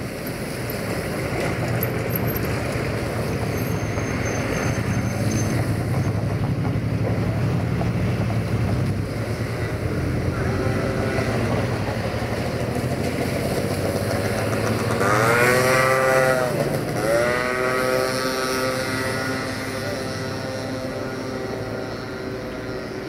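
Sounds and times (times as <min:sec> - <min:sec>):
loud pitched whine: 0:15.9 - 0:23.0.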